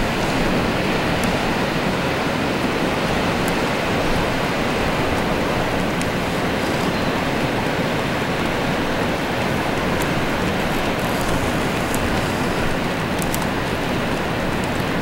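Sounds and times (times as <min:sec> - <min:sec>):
strong wind: 0:00.0 - 0:15.0.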